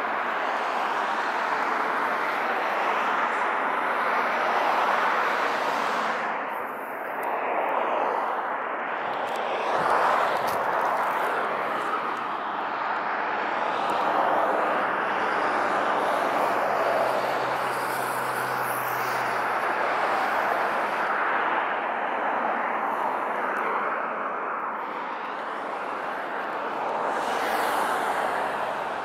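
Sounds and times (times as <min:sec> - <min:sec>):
highway traffic passing: 0:00.0 - 0:29.0.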